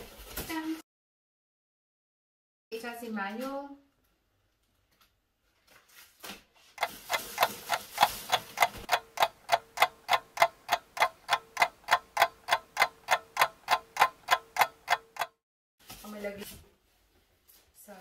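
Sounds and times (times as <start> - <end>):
plastic rustling: 4.7 - 8.9
clock ticking: 6.8 - 15.4.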